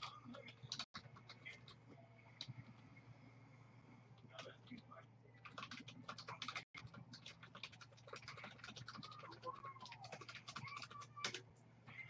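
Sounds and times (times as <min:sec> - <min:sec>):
fast typing on a keyboard: 0:00.0 - 0:01.8, 0:05.4 - 0:11.4.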